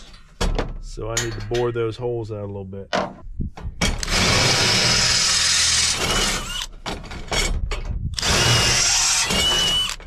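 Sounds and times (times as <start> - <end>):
cordless drill drilling sheet metal: 3.9 - 7.5, 8.2 - 10.0.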